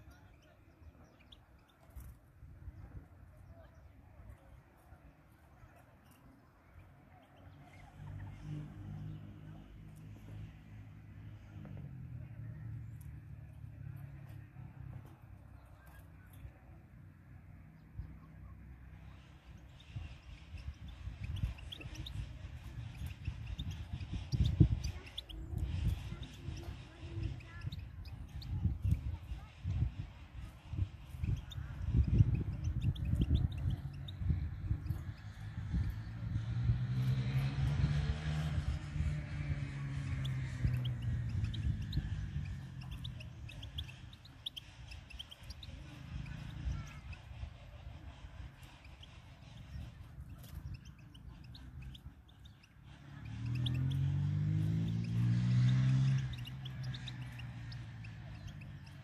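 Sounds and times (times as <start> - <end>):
small birds chirping: 0.0 - 59.0
wind buffeting microphone: 19.1 - 59.0.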